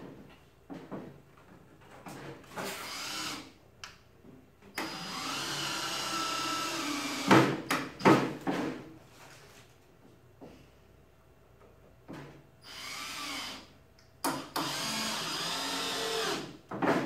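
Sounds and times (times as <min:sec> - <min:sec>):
cordless drill into wood: 0:02.8 - 0:03.5, 0:04.8 - 0:07.4, 0:12.6 - 0:13.7, 0:14.3 - 0:16.6.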